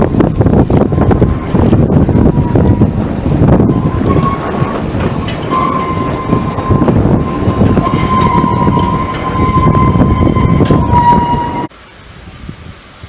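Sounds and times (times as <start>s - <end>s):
rumble of moving carriages: 0.0s - 13.0s
steam whistle blast: 5.5s - 11.7s.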